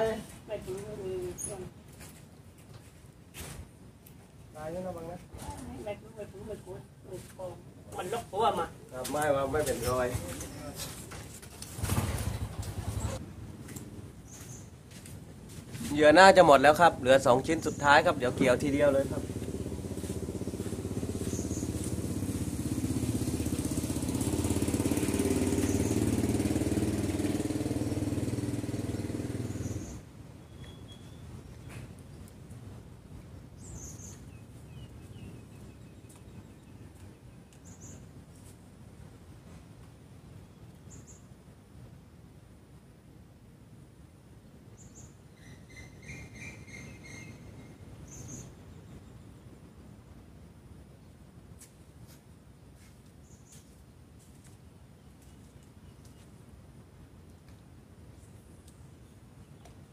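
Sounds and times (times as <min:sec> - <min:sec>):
bird chirping: 0:14.2 - 0:14.8, 0:17.1 - 0:19.7, 0:20.3 - 0:22.2, 0:25.3 - 0:26.4, 0:29.3 - 0:32.3, 0:33.6 - 0:38.5, 0:40.5 - 0:41.3, 0:44.8 - 0:49.5
small engine running: 0:18.9 - 0:30.0.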